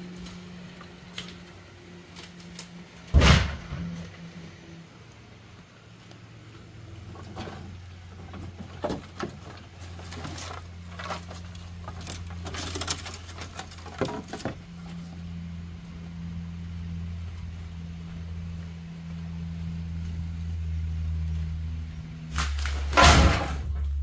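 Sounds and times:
steady low hum: 0.0s - 24.0s
bamboo poles knocking together: 7.2s - 14.9s.

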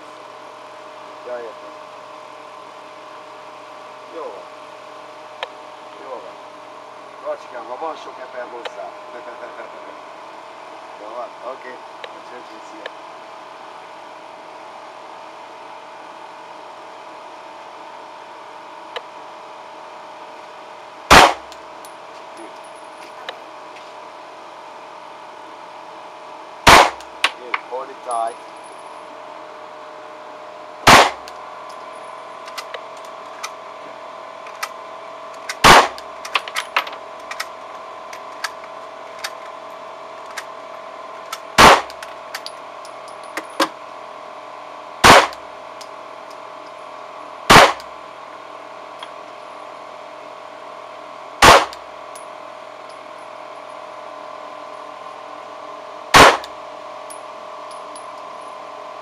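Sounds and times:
steady hum: 0.0s - 59.0s
pistol shots: 21.1s - 21.5s, 26.7s - 27.0s, 30.8s - 31.3s, 35.6s - 36.0s, 41.6s - 42.0s, 45.0s - 45.4s, 47.5s - 47.9s, 51.4s - 51.8s, 56.1s - 56.5s.

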